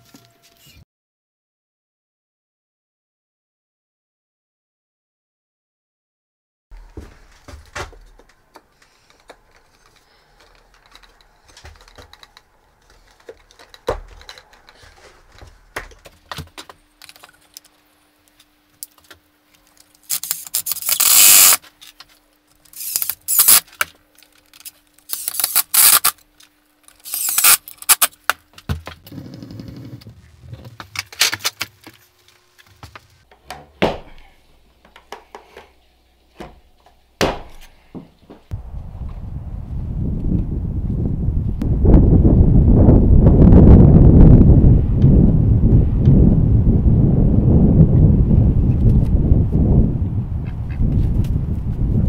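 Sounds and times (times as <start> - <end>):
wood clicks and knocks: 7.4 - 14.8
cordless drill boring into wood: 20.4 - 21.6, 22.8 - 23.6, 25.1 - 26.1, 27.0 - 28.1.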